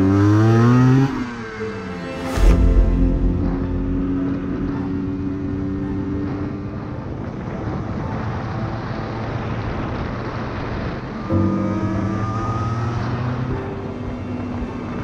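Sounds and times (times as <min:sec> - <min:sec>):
wind and road noise: 0:00.0 - 0:15.0
motorcycle engine running: 0:00.7 - 0:15.0
steady tones: 0:01.2 - 0:07.4.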